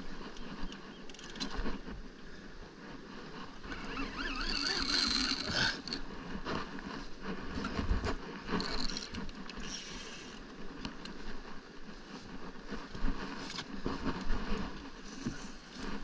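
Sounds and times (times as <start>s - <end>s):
fishing reel cranking: 3.7s - 6.1s, 8.5s - 10.3s.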